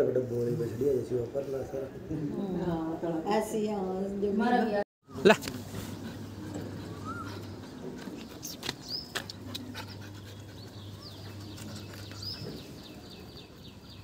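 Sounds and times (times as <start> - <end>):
dog panting: 5.7 - 13.3.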